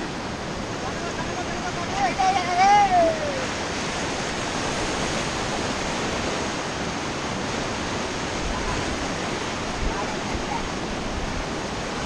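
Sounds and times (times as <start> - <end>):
whitewater rapids rushing: 0.0 - 12.0.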